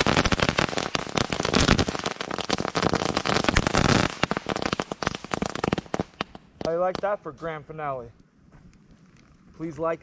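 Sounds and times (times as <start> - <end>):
ground firework crackling and popping: 0.0 - 7.9.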